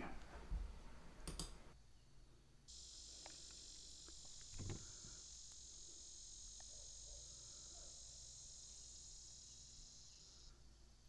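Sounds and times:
faint insect chorus: 2.7 - 11.0.

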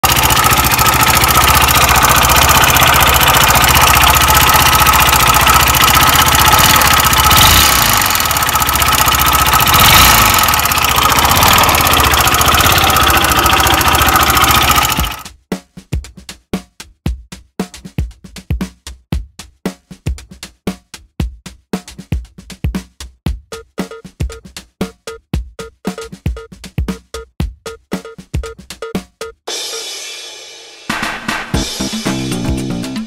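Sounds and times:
scooter engine knocking: 0.0 - 15.3
drum beat: 0.0 - 33.0.

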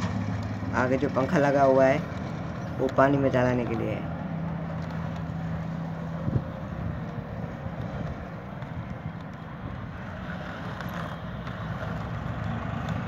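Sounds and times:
wind on microphone: 6.1 - 10.2.

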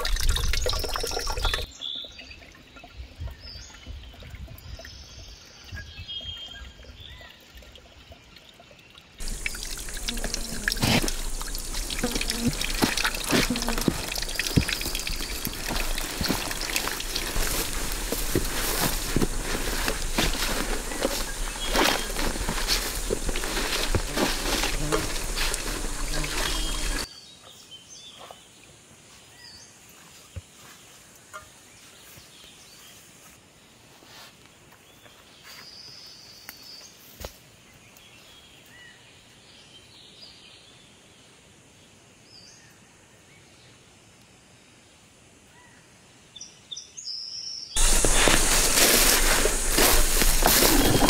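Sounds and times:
small ticks: 9.2 - 16.8
loud rustling: 9.2 - 27.1, 47.8 - 51.0.

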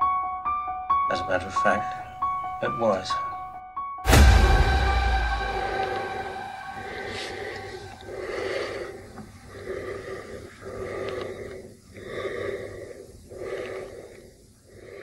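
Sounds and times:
heavy slow breathing: 4.5 - 15.0.

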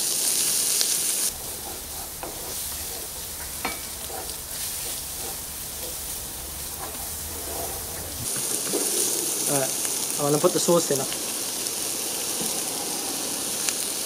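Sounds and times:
rice sizzling in a frying pan: 0.0 - 14.0
spatula knocking on pan: 1.3 - 8.8
wooden spatula scraping a pan: 1.3 - 10.5.

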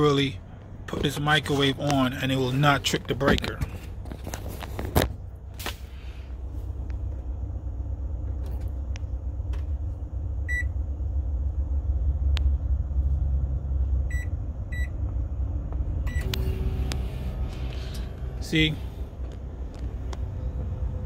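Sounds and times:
steady low rumble: 0.0 - 21.0
microwave keypad beeps: 14.1 - 14.9.

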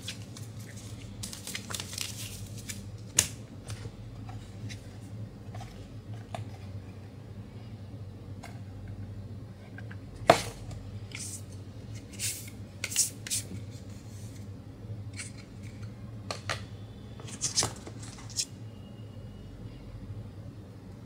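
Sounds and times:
card and plastic rustling: 0.0 - 6.8, 17.2 - 18.5
faint low hum: 0.0 - 21.0.

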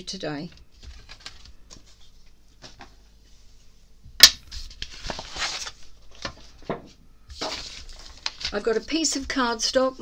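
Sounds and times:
paper rustling: 0.8 - 3.0, 4.5 - 6.6, 7.3 - 9.5.

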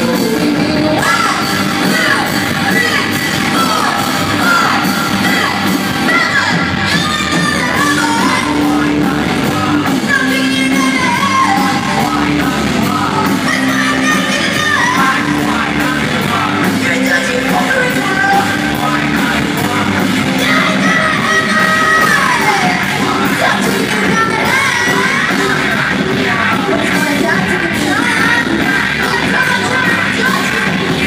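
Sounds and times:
woman singing: 0.0 - 2.1, 6.1 - 12.4
bass guitar: 0.0 - 31.0
drums and cymbals: 0.0 - 31.0
electric guitars: 0.0 - 31.0.

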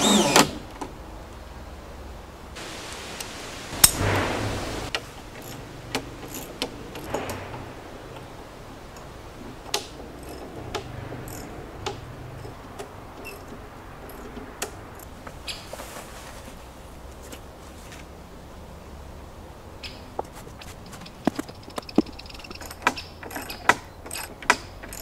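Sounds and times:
metal hardware clicks and taps: 20.9 - 25.0.

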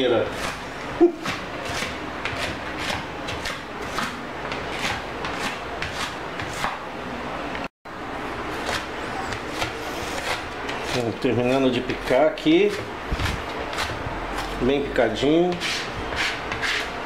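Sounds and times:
knife chopping on plastic board: 1.2 - 6.8, 8.6 - 11.1, 11.8 - 14.6, 15.5 - 16.9.

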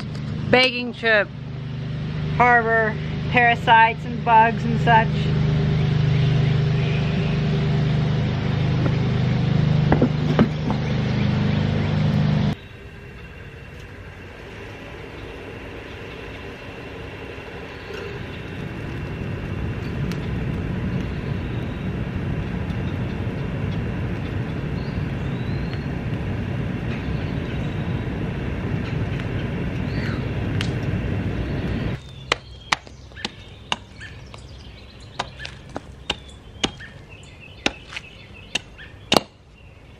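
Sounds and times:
motor running: 0.0 - 12.6
low rumble: 0.0 - 38.6
hatchet chopping wood: 32.2 - 33.9, 35.2 - 36.9, 37.6 - 39.4.

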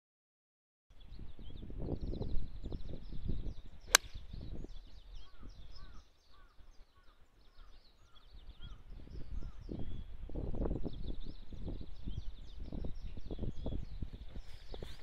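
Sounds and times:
birds chirping: 1.0 - 15.0
golf club striking ball: 3.9 - 4.2.

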